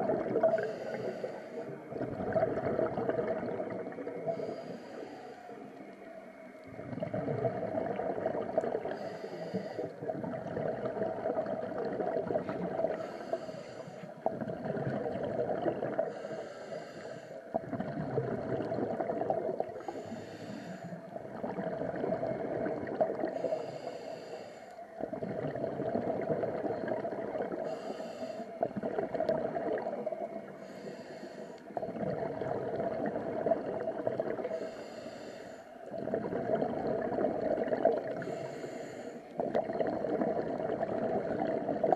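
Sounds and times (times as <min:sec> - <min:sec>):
bubbling exhale: 0:00.0 - 0:05.7, 0:06.7 - 0:41.9
hissing regulator inhale: 0:00.4 - 0:02.0, 0:04.2 - 0:05.9, 0:08.7 - 0:10.1, 0:12.8 - 0:14.3, 0:15.9 - 0:17.6, 0:19.6 - 0:21.2, 0:23.2 - 0:25.0, 0:27.5 - 0:28.9, 0:30.4 - 0:32.0, 0:34.4 - 0:35.9, 0:37.9 - 0:39.4.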